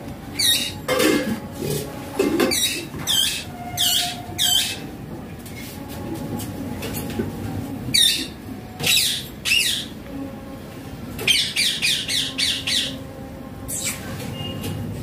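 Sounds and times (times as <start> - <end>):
parakeet squawking: 0.4 - 0.8, 2.5 - 4.9, 7.9 - 9.9, 11.2 - 13.0.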